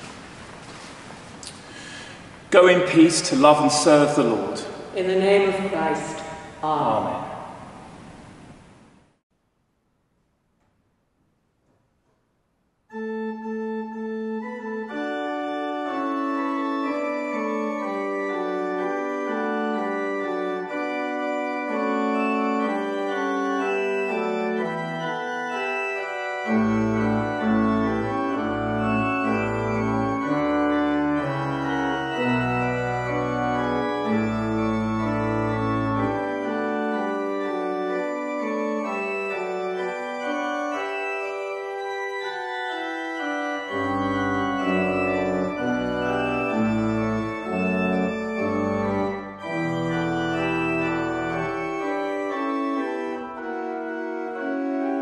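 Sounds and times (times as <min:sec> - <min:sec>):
pipe organ chords: 0:00.0 - 0:08.4, 0:12.9 - 0:55.0
deep organ pedal bass: 0:12.9 - 0:55.0.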